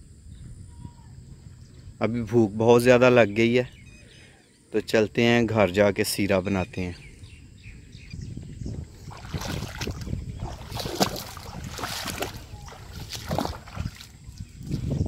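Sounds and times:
feet wading through muddy water: 8.7s - 15.0s.

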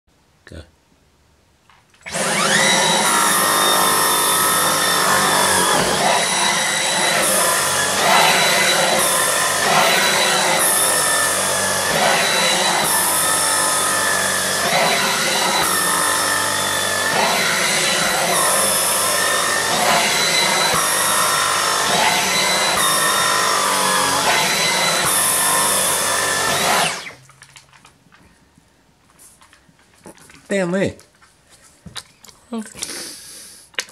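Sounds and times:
vacuum cleaner high whine: 2.1s - 27.2s.

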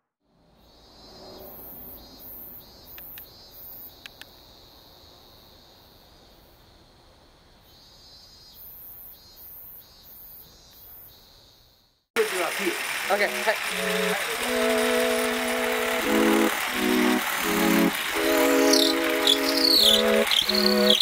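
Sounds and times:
insects chirping: 0.4s - 21.0s.

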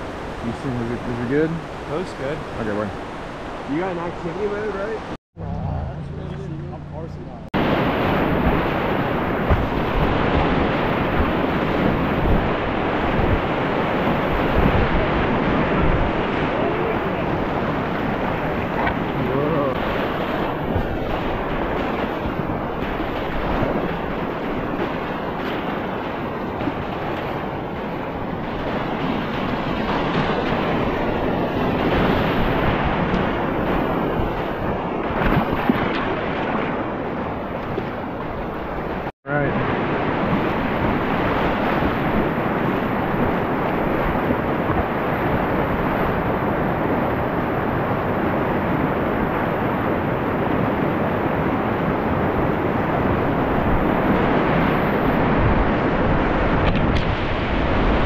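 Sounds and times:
wind buffeting microphone: 0.0s - 58.0s
whitewater rapids rushing: 7.6s - 36.8s.

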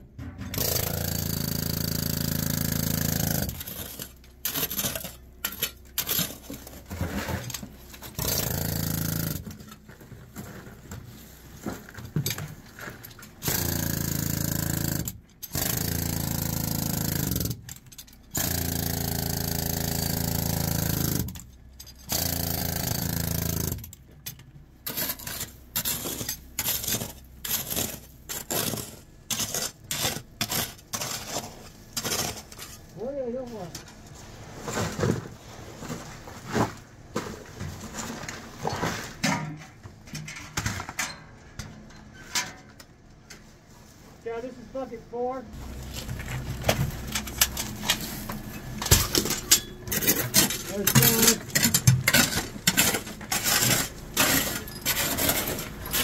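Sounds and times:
mining machinery running loudly: 0.3s - 9.5s, 45.6s - 56.0s
rock scraping and knocking: 45.6s - 56.0s.

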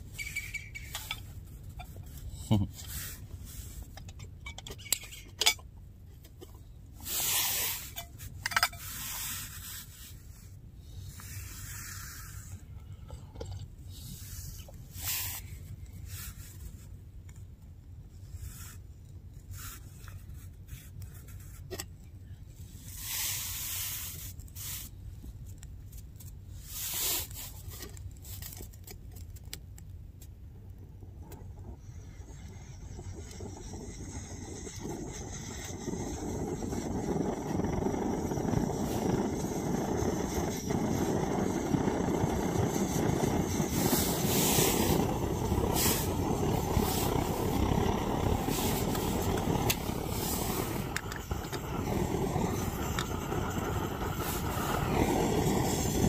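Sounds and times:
scraping and rubbing noises: 0.0s - 5.6s, 6.2s - 17.0s, 18.2s - 22.0s, 22.8s - 29.5s, 31.2s - 56.0s
steady low rumble: 30.5s - 56.0s.

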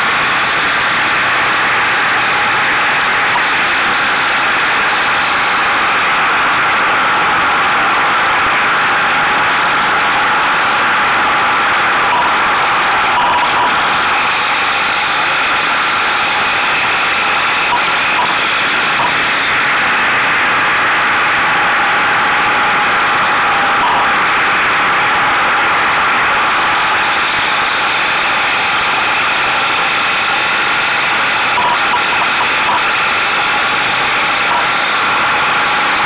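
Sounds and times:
motorcycle engine running: 0.0s - 36.0s.

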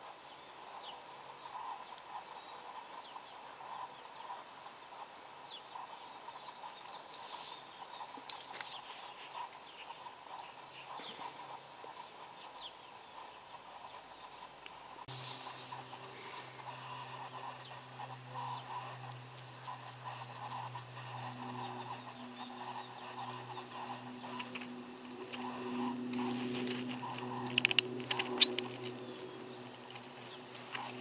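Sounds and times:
background hiss: 0.0s - 31.0s
low steady hum: 10.7s - 31.0s.

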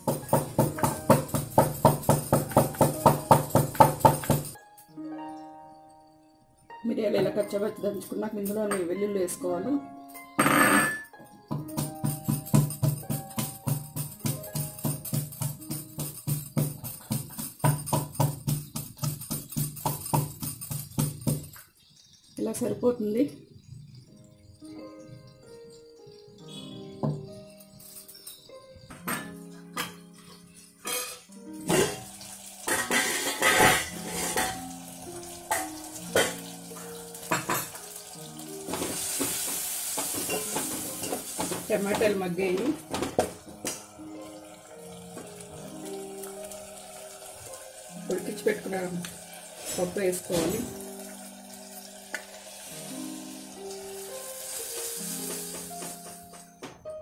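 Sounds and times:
pestle pounding in wooden mortar: 0.0s - 4.6s, 11.7s - 21.5s
tomatoes sizzling in oil: 0.0s - 4.6s, 11.7s - 56.5s
background music sustained notes: 0.0s - 57.0s
steel lid clinking on pot: 10.4s - 11.1s, 30.8s - 32.1s, 32.7s - 34.6s
bangles jingling: 11.8s - 22.4s, 27.4s - 28.8s.

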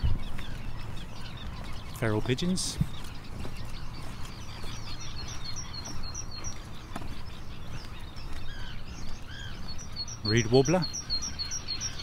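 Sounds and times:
birds calling and singing: 0.0s - 12.0s.

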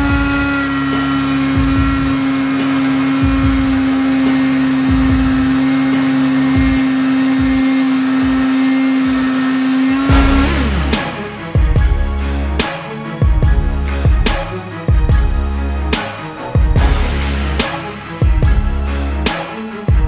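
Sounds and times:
sandpaper on spinning wood: 0.0s - 11.2s
angle grinder running: 0.0s - 13.0s
motor winding down: 0.0s - 20.0s.

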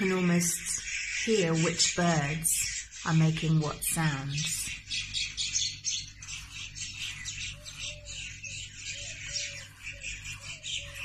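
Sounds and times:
lower bird calls: 0.0s - 11.0s
small birds chirping: 0.0s - 11.0s.

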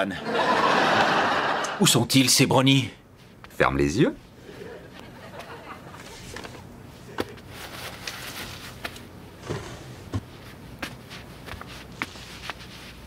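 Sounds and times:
soft rustle: 3.1s - 3.6s, 4.2s - 13.0s.

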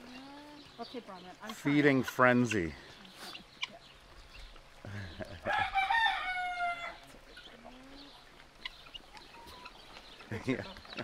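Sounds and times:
rooster crowing: 5.4s - 7.0s.

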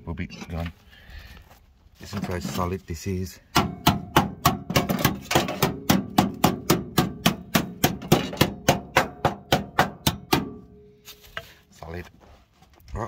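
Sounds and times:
hammer knocking on steel panel: 3.5s - 10.7s.

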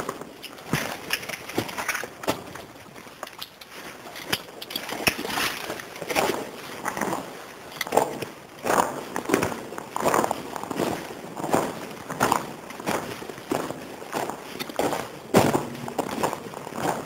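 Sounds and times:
footsteps crunching: 0.0s - 17.0s.

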